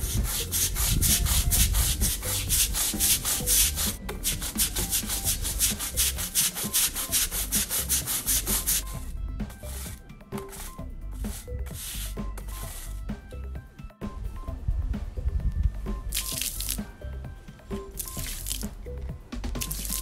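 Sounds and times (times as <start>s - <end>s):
stiff brush scrubbing paving: 0.0s - 13.2s, 16.1s - 16.9s, 17.7s - 18.8s, 19.6s - 20.0s.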